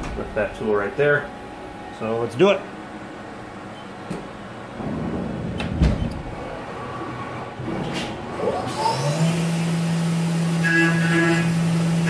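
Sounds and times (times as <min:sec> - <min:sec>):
spindle motor steady hum: 0:00.0 - 0:12.0
machine door sliding shut: 0:04.8 - 0:08.9
motor whines gliding up and down: 0:08.4 - 0:12.0.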